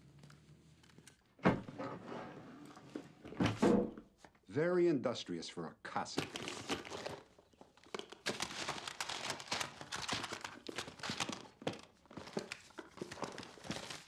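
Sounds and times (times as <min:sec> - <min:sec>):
papers rustling and crinkling: 0:06.0 - 0:14.0.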